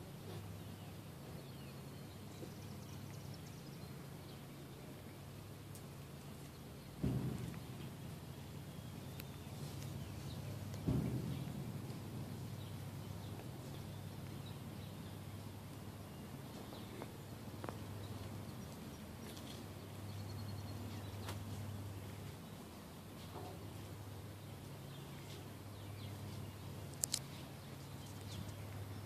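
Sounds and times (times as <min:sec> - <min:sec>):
low hum: 0:00.0 - 0:29.0
dull thump: 0:07.0 - 0:14.4
faint bird chirps: 0:12.4 - 0:22.5.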